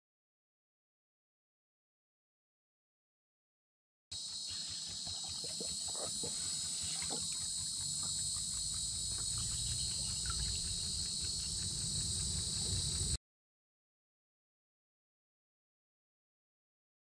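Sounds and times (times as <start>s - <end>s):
cicadas droning: 4.2s - 13.2s.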